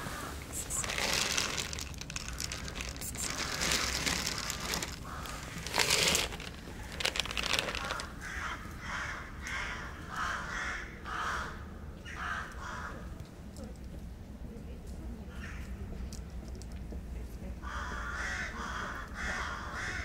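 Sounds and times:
short harsh calls: 0.2s - 8.1s
kibble rattling onto concrete: 0.6s - 8.2s.

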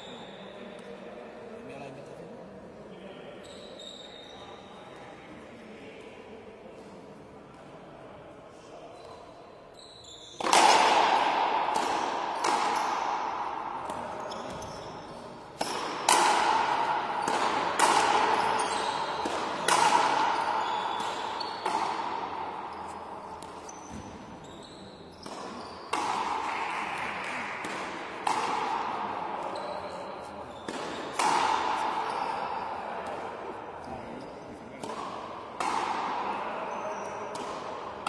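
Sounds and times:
ball struck by rackets: 10.4s - 24.2s, 25.2s - 29.5s, 30.6s - 32.4s, 34.8s - 36.4s, 37.3s - 38.0s.

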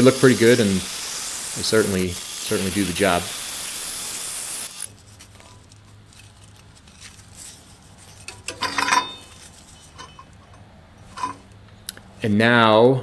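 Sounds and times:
low steady hum: 4.9s - 12.2s
steel pieces clinking and scraping: 5.2s - 11.6s.

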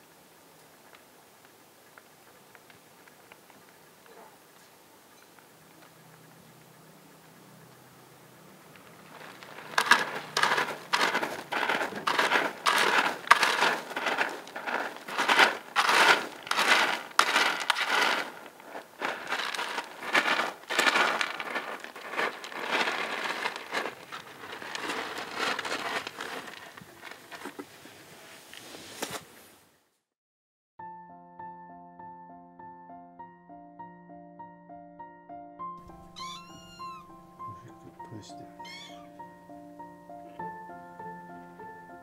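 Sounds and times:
kitten scratching in cat litter: 9.0s - 29.2s, 35.9s - 37.1s.

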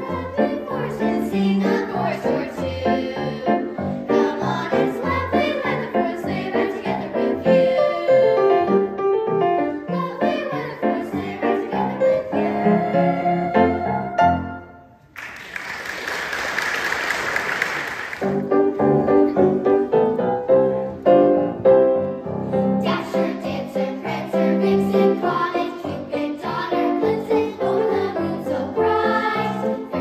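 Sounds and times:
singing with accompaniment: 0.0s - 9.0s, 9.6s - 14.8s, 22.8s - 30.0s
audience applause: 15.1s - 18.5s.

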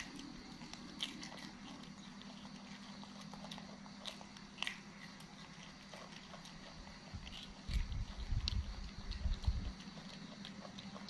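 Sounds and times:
low steady hum: 0.0s - 11.0s
monkeys crunching green beans: 0.0s - 11.0s.

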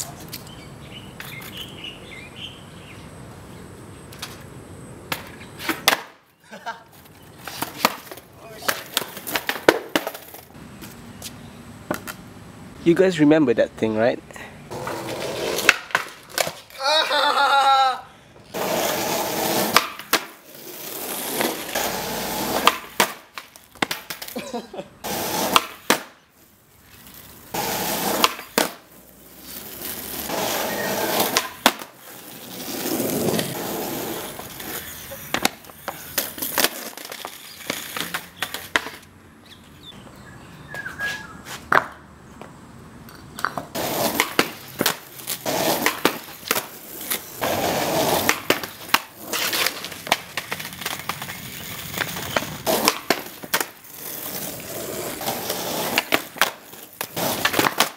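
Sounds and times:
skateboard wheels rolling on concrete: 0.0s - 57.9s
skateboard cracks and knocks: 4.1s - 6.3s, 6.9s - 10.6s, 14.7s - 17.4s, 18.5s - 24.5s, 25.1s - 26.2s, 27.0s - 39.1s, 41.7s - 42.1s, 43.1s - 57.9s.

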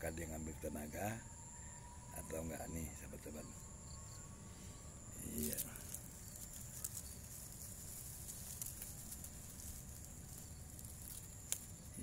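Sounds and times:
insects chirring: 0.0s - 12.0s
light rustling clicks: 5.4s - 12.0s.

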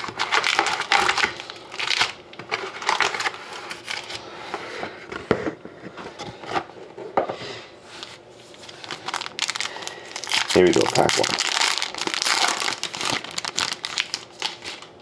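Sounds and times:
foil packs rustling and crinkling: 0.0s - 4.3s, 8.5s - 15.0s.

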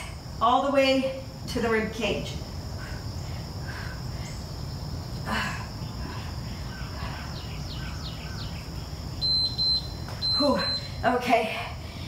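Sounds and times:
high insect drone: 0.0s - 12.0s
faint bird chirps: 4.1s - 11.2s.

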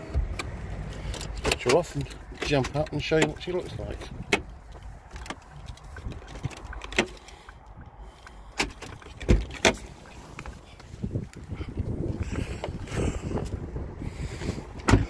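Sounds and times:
clicks of car controls: 0.0s - 11.4s.

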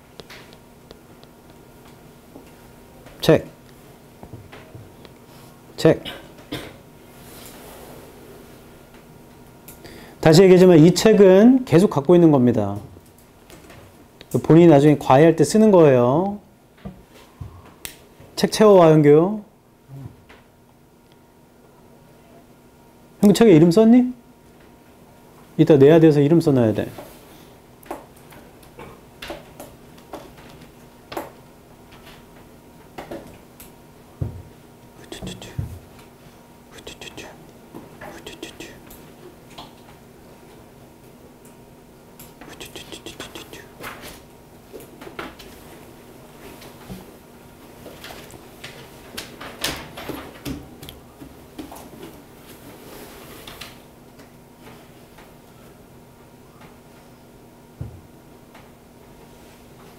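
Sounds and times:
faint steady hum: 0.0s - 59.9s
pens and books tapping on desks: 27.8s - 34.5s, 47.9s - 52.2s.

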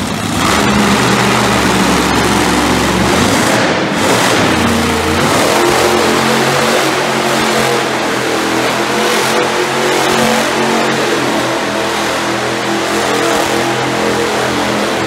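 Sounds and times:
monster truck engines running: 0.0s - 15.0s.

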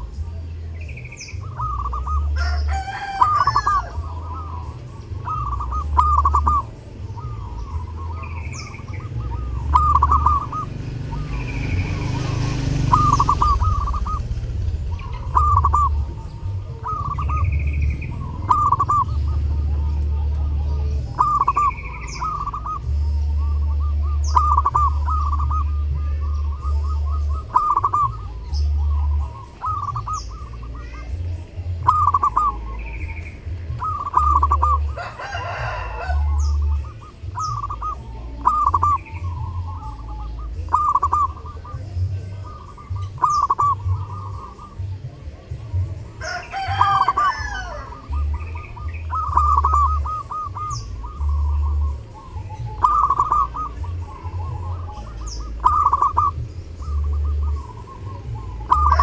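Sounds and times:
dove cooing: 0.0s - 59.0s
small birds chirping: 0.0s - 59.0s
louder bird call: 0.8s - 45.0s.

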